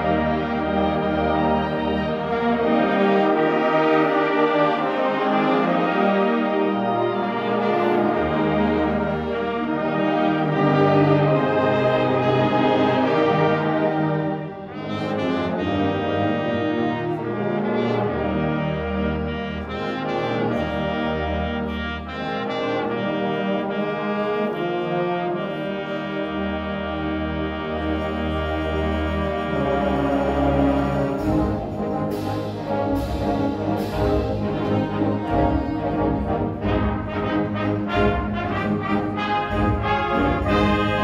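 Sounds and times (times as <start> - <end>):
brass sustained chords: 0.0 - 41.0
concert band playing: 27.1 - 41.0.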